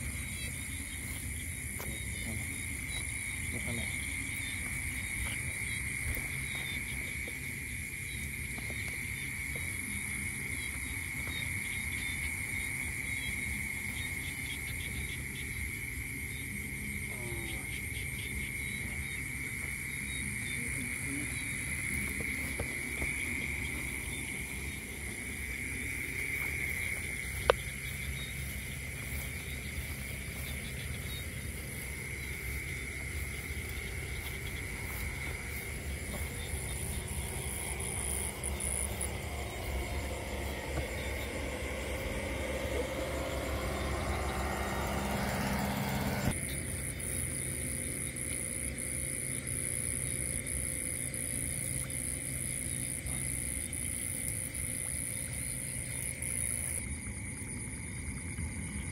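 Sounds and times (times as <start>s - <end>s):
high-pitched insect buzz: 0.0s - 56.9s
crickets trilling: 0.0s - 58.9s
low rumbling handling noise: 21.9s - 47.4s.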